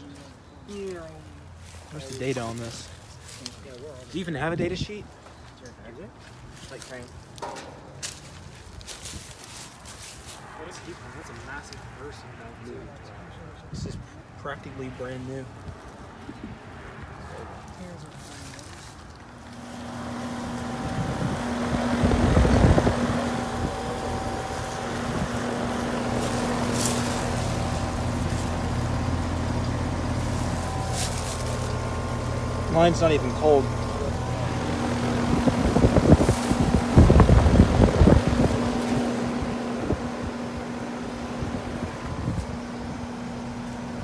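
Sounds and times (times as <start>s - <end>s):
heat pump humming: 7.2s - 10.0s, 17.8s - 44.0s
low rumble of air noise: 19.8s - 44.0s
wind rumbling on microphone: 20.6s - 25.8s, 35.0s - 40.4s.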